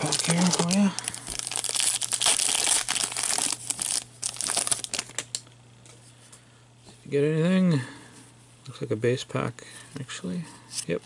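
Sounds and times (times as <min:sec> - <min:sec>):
wrapper tearing and crinkling: 0:00.0 - 0:05.3.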